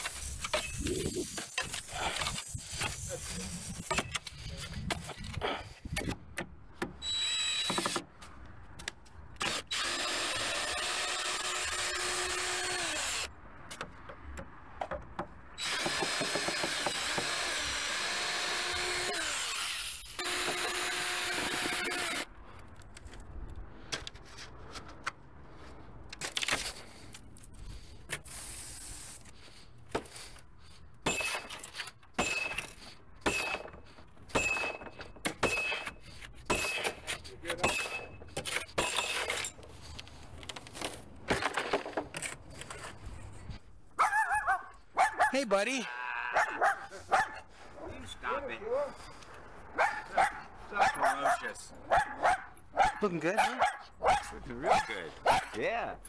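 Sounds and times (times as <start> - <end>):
power drill whining: 7.0 - 8.0, 9.4 - 13.3, 15.6 - 22.3.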